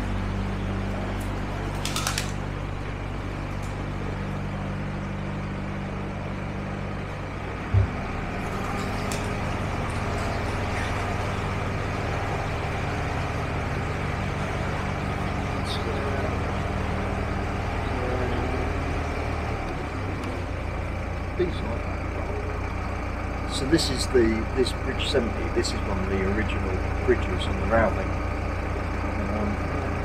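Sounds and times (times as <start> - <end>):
boat diesel engine humming: 0.0 - 30.0
loud thump: 7.7 - 8.0.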